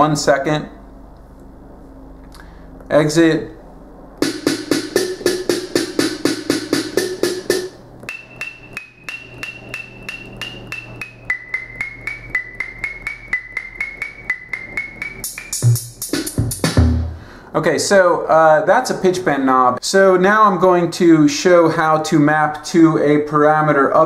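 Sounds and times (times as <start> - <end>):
deep bassy drum hit: 4.2 - 7.7
pitch-bent drum sample hits: 4.2 - 11.6.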